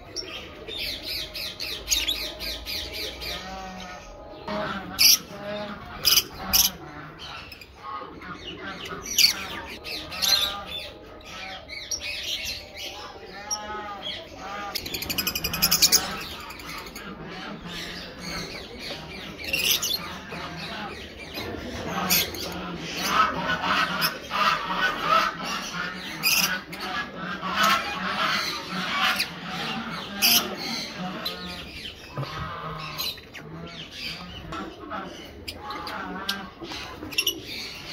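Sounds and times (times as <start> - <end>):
lovebirds squawking and chirping: 0.0 - 37.9.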